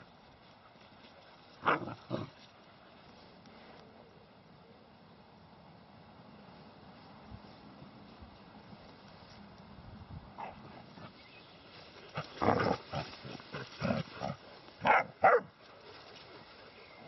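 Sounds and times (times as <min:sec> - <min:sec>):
puppy barking: 0:14.8 - 0:15.5.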